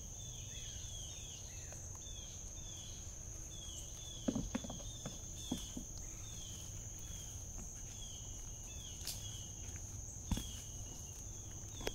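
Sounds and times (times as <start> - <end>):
goats butting heads thumps: 4.2 - 6.0.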